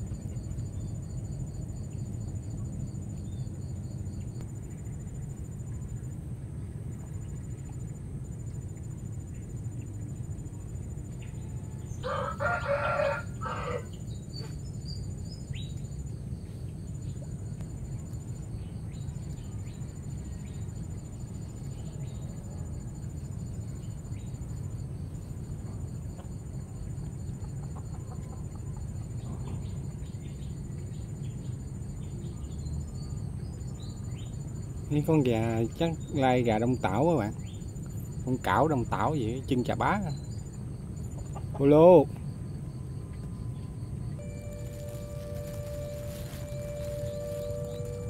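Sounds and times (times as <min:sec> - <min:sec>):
faint high insect buzz: 0:00.0 - 0:48.0
rooster crowing: 0:12.0 - 0:14.1, 0:44.2 - 0:48.0
low background rumble: 0:36.8 - 0:48.0.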